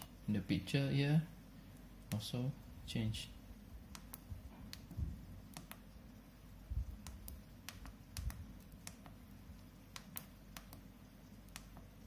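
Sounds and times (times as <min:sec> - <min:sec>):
dull low thumps: 0:04.3 - 0:05.3.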